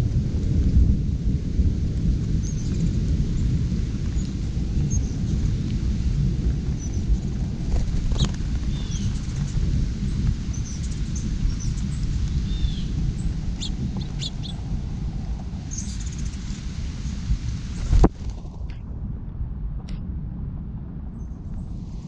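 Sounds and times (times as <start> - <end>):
steady low rumble: 0.0 - 22.0
songbirds chirping: 8.1 - 14.7.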